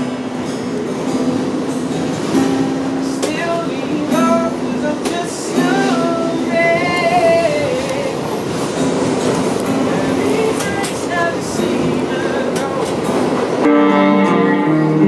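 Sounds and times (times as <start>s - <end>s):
acoustic guitar: 0.0s - 15.0s
train rumble: 0.0s - 15.0s
person singing: 3.1s - 8.4s.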